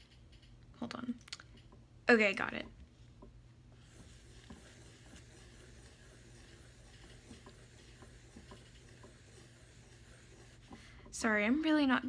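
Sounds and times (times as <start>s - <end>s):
low room hum: 0.0s - 12.0s
pencil scratching on paper: 3.8s - 11.1s.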